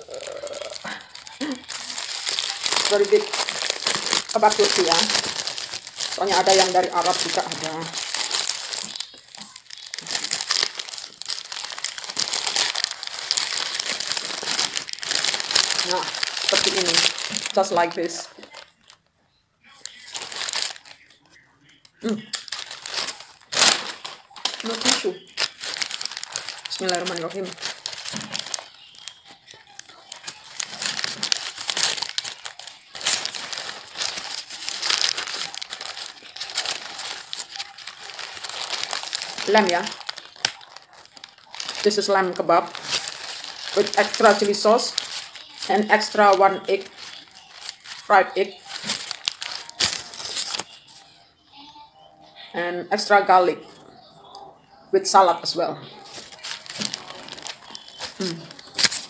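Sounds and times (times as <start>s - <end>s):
close-up chewing: 0.0s - 19.0s, 19.7s - 50.9s, 56.0s - 59.0s
paper wrapping crinkling: 0.0s - 51.2s, 55.1s - 59.0s.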